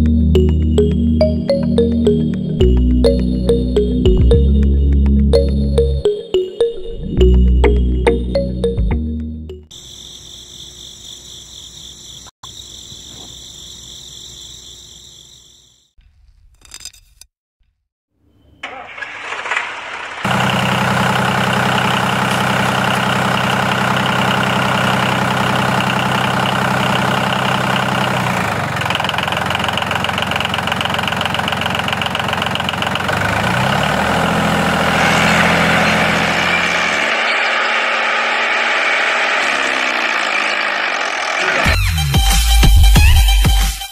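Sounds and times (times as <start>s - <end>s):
tractor engine running: 0.0s - 6.1s, 18.6s - 41.9s
high whine: 34.8s - 41.9s.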